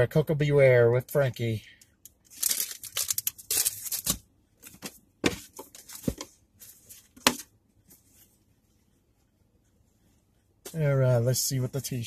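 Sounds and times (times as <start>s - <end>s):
packaging rustling and crinkling: 2.2s - 4.9s.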